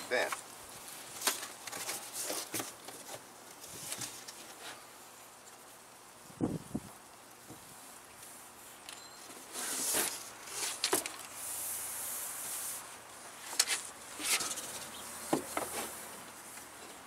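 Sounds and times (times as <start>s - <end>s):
cardboard scraping and rustling: 1.0s - 4.9s, 9.3s - 11.9s, 12.5s - 17.0s.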